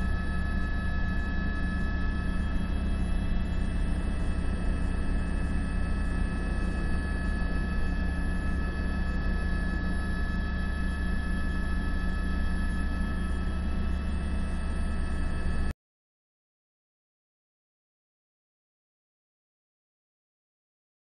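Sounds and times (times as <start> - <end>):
faint steady whine: 0.0 - 15.7
helicopter rotor and engine drone: 0.0 - 15.8.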